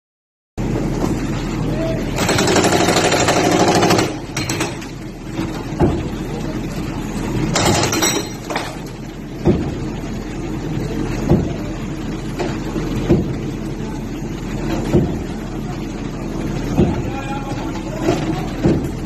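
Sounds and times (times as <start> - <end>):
backhoe arm knocking masonry: 3.4 - 6.2, 7.5 - 9.8, 11.2 - 11.6, 13.0 - 13.4, 14.8 - 15.3, 18.2 - 19.0
voices: 13.6 - 19.0.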